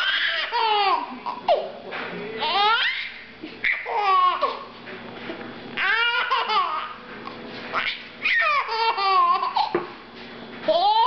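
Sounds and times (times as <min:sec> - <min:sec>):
baby laughing: 0:00.0 - 0:01.7, 0:02.4 - 0:04.7, 0:05.8 - 0:07.0, 0:07.8 - 0:09.8.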